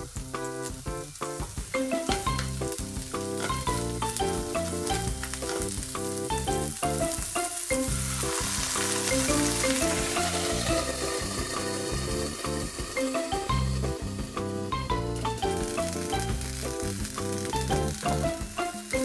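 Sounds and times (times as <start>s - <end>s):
background music with short notes: 0.0s - 19.0s
vegetables sizzling in a frying pan: 0.0s - 19.0s
chopsticks stirring in a pan: 1.2s - 13.9s.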